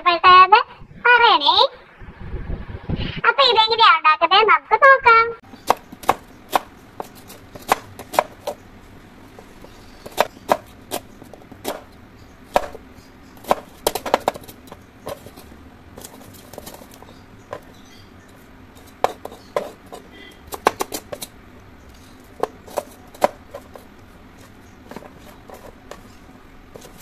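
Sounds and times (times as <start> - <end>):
knife chopping on cutting board: 5.6 - 8.6, 10.0 - 11.9, 12.5 - 12.8, 13.4 - 14.5, 18.8 - 21.3, 22.4 - 23.9.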